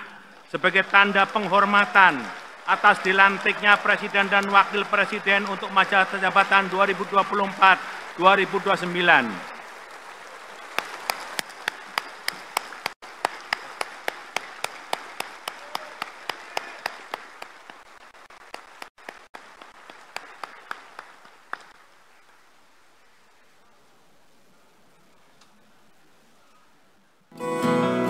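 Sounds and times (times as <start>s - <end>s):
nearby person clapping: 0.0s - 21.8s
crowd applauding: 0.0s - 22.7s.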